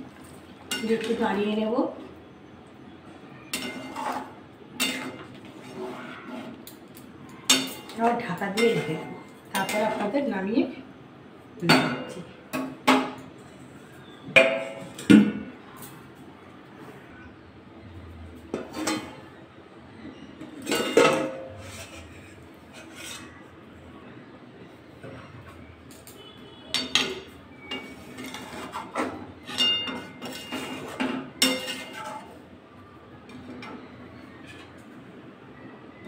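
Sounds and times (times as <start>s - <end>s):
metal cookware clanking: 0.2s - 1.4s, 3.5s - 6.0s, 6.6s - 10.2s, 14.4s - 15.9s, 18.5s - 19.3s, 20.2s - 23.4s, 25.0s - 32.4s
spatula scraping metal pan: 3.6s - 6.6s, 21.1s - 23.5s, 27.8s - 32.4s.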